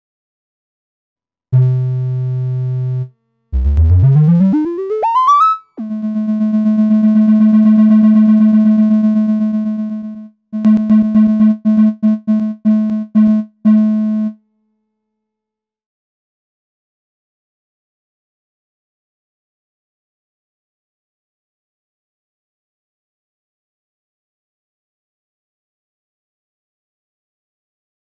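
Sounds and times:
analog synthesizer notes: 1.6 - 14.4.

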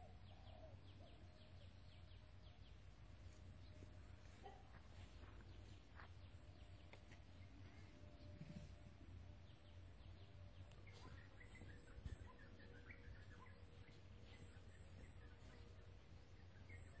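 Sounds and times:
faint birds chirping: 0.0 - 17.0
low steady rumble: 0.0 - 17.0.

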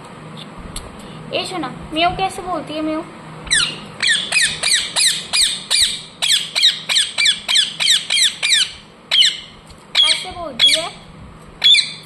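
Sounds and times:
parrot squawking: 3.5 - 11.0, 11.6 - 12.0.

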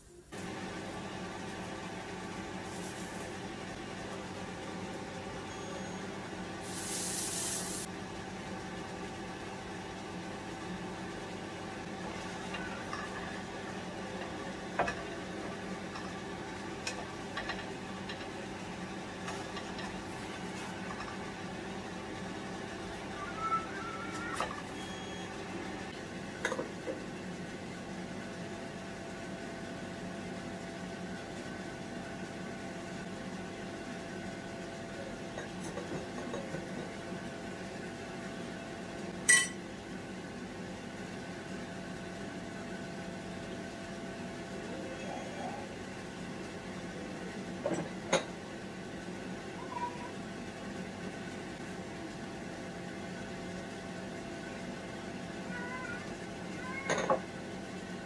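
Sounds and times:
steady background hum: 0.0 - 58.0
utensils clinking on pan and dishes: 39.3 - 39.6.

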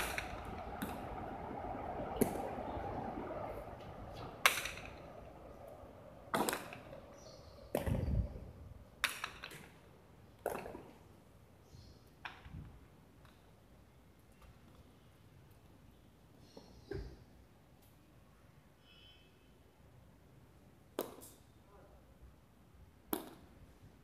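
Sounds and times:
ball striking walls sharp cracks: 0.0 - 2.8, 3.5 - 11.2, 20.9 - 21.5, 23.0 - 23.7.

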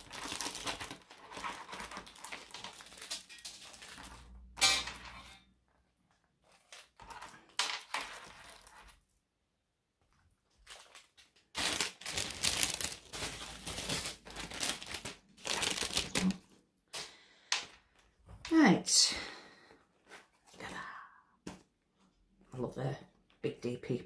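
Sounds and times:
plastic packaging crinkling: 0.0 - 4.5, 6.2 - 9.0, 10.4 - 16.6.

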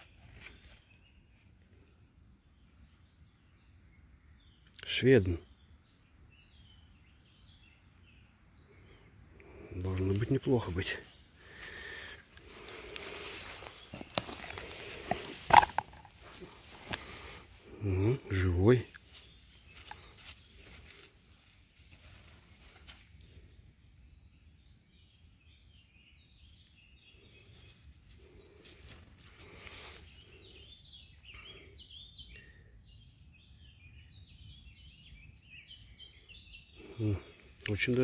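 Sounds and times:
rustles and scrapes of handling: 0.0 - 0.9, 11.5 - 17.6, 18.9 - 23.5, 27.6 - 30.5
faint bird chirps: 0.0 - 38.0.

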